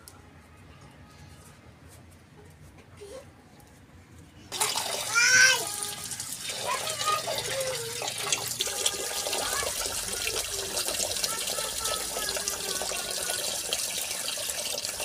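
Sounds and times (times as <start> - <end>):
tap water splashing into colander: 4.5 - 15.0.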